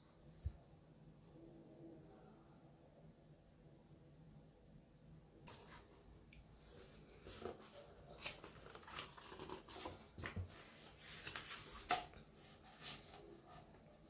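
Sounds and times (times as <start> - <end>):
book pages rustling: 6.6 - 14.0.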